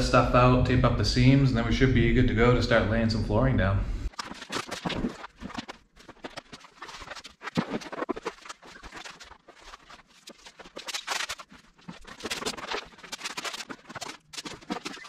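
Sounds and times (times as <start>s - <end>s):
plastic underlayment rustling: 4.1s - 15.0s.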